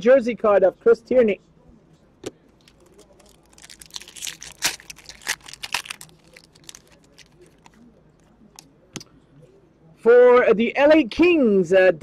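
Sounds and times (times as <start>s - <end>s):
plastic wrapper crinkling: 2.6s - 7.8s.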